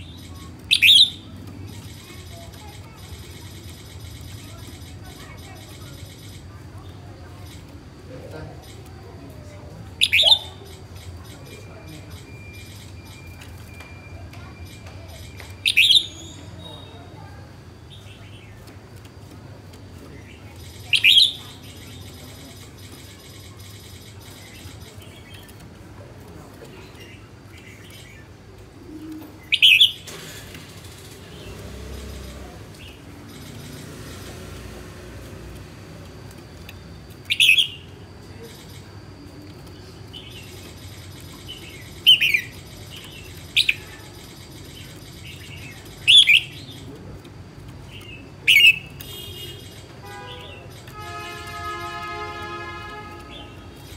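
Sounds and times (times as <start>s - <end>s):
bird chirping loudly: 0.0s - 2.1s, 10.0s - 10.8s, 14.6s - 17.0s, 20.6s - 22.1s, 29.4s - 30.1s, 37.3s - 37.9s, 40.1s - 46.9s, 48.4s - 49.9s.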